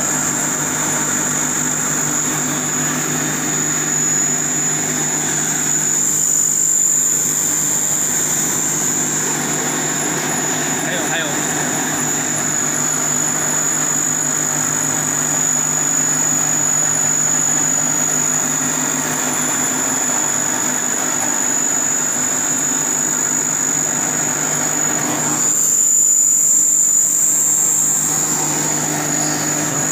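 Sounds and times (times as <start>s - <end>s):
grinding machine motor hum: 0.0s - 29.9s
high-pitched machine whine: 0.0s - 29.9s.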